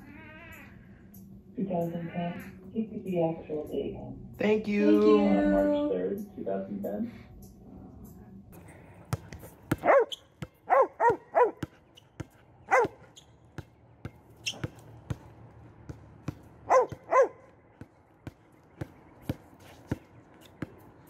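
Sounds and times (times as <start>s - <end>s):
basketball bouncing on concrete: 9.0s - 21.0s
dog barking: 9.8s - 11.6s, 12.7s - 13.0s, 16.7s - 17.5s.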